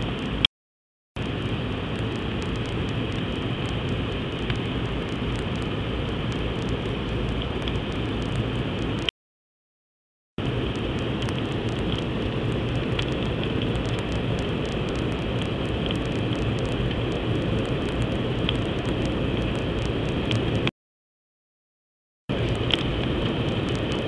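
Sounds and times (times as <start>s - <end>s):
faint clicks: 22.6s - 24.0s.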